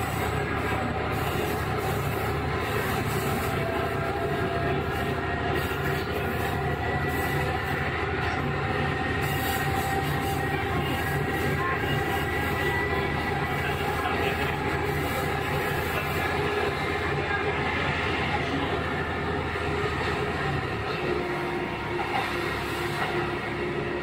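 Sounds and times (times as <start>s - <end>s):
diesel engine drone: 0.0s - 24.0s
rail running noise: 0.0s - 24.0s.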